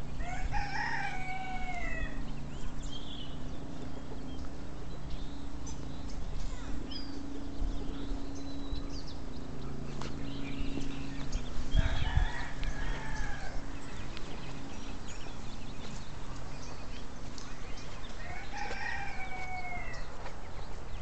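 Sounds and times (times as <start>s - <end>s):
rooster crowing: 0.2s - 2.2s, 11.7s - 13.7s, 18.2s - 20.1s.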